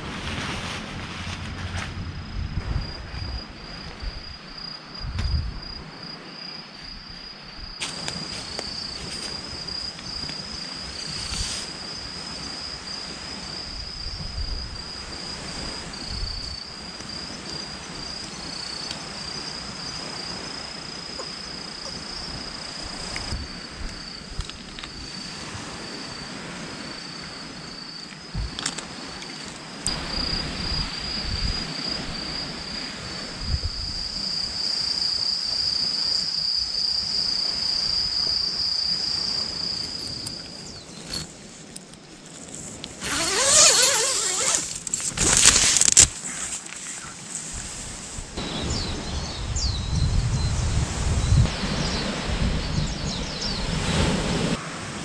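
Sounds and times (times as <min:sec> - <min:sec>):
low rumble: 0:00.0 - 0:04.3
insect trilling: 0:07.6 - 0:25.3, 0:43.0 - 0:47.2.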